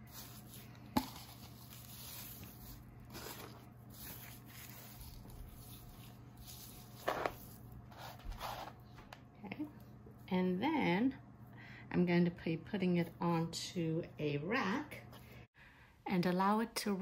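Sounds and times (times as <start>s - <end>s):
hands rubbing wet meat: 0.0s - 8.2s.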